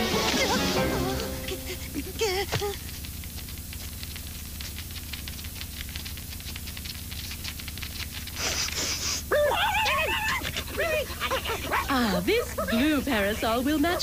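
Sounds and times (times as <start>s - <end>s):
low hum: 0.0s - 8.4s
rapid soft taps: 2.5s - 8.4s.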